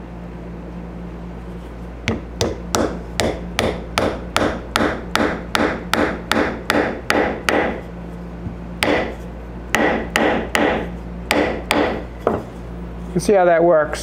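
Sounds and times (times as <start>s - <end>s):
hammer tapping on metal tool: 2.1s - 7.8s, 8.8s - 12.5s.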